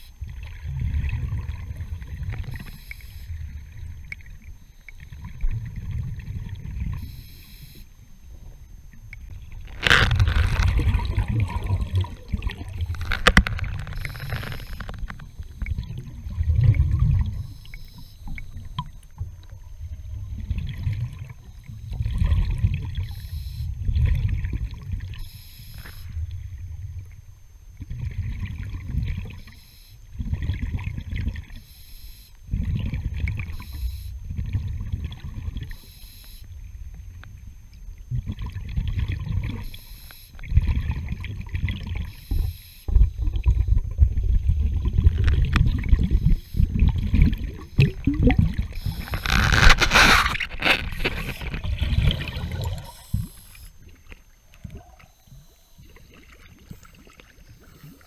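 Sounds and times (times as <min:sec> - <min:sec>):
exhaled air bubbling: 0:00.0 - 0:31.6, 0:32.4 - 0:35.8, 0:36.5 - 0:58.0.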